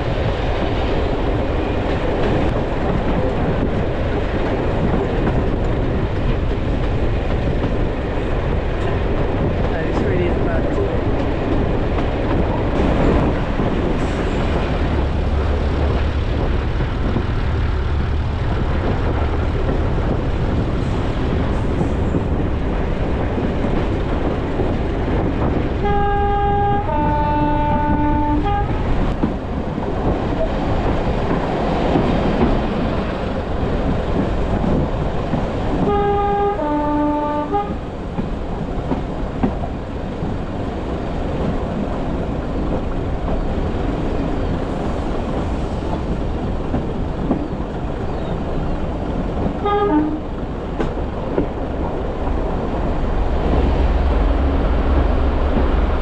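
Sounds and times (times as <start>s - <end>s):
train running rumble: 0.0s - 56.0s
two-tone train horn: 25.8s - 28.9s, 35.8s - 37.8s, 49.6s - 50.3s.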